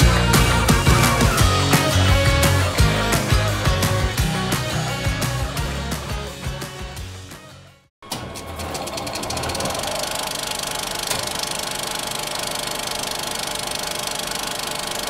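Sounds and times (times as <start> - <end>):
film projector clatter: 8.1 - 15.0.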